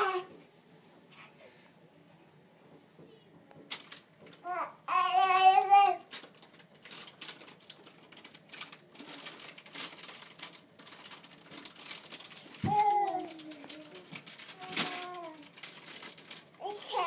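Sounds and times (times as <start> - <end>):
baby babbling: 0.0 - 0.3, 4.4 - 6.1, 12.7 - 14.0, 16.6 - 17.0.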